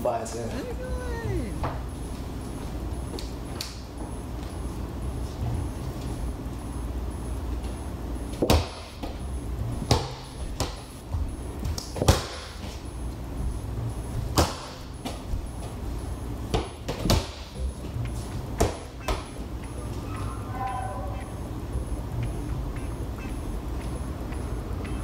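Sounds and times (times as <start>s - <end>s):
ball bouncing on wooden floor: 16.5s - 17.4s, 18.6s - 19.4s.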